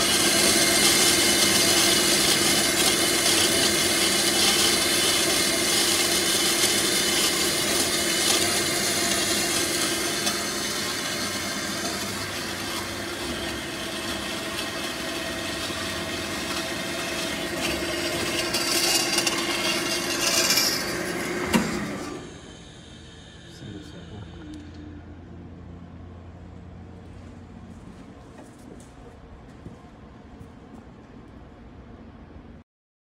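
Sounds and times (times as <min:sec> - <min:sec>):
band saw cutting steel: 0:00.0 - 0:24.7.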